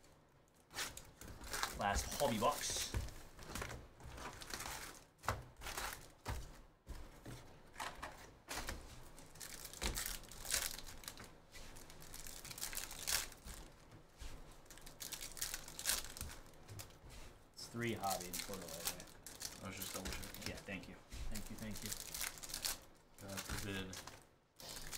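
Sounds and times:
wrapper tearing: 0:00.6 - 0:02.7, 0:09.2 - 0:11.2, 0:11.8 - 0:13.7, 0:14.6 - 0:17.0, 0:18.0 - 0:20.6, 0:21.4 - 0:24.9
foil packs crinkling: 0:00.6 - 0:06.3, 0:07.8 - 0:13.8, 0:14.5 - 0:17.0, 0:17.8 - 0:24.9.

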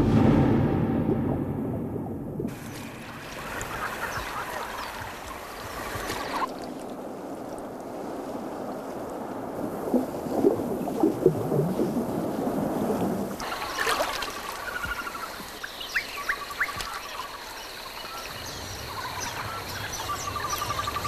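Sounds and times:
water splashing and churning: 0:00.0 - 0:21.0
muffled underwater bubbling: 0:02.5 - 0:06.5, 0:09.8 - 0:15.4.

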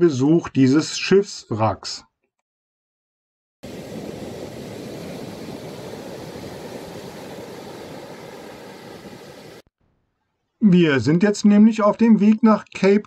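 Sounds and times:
heavy surf breaking: 0:03.6 - 0:09.7.

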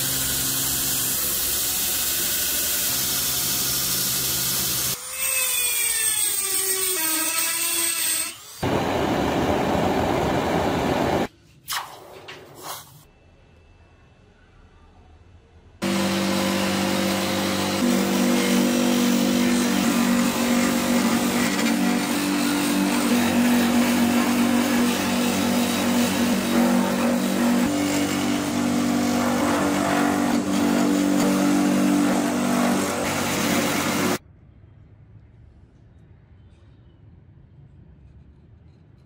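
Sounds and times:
chisel cutting wood hiss: 0:00.0 - 0:05.0
lathe motor hum: 0:15.8 - 0:34.2.

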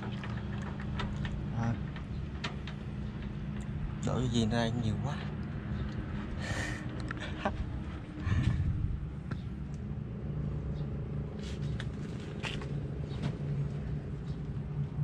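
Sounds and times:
sharp clicks and knocks: 0:00.0 - 0:03.8.

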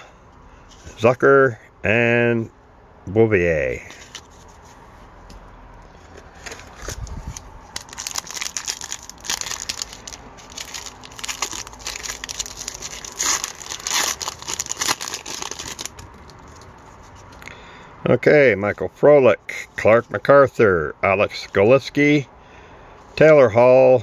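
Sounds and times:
foil wrapper crinkling: 0:06.3 - 0:16.8.

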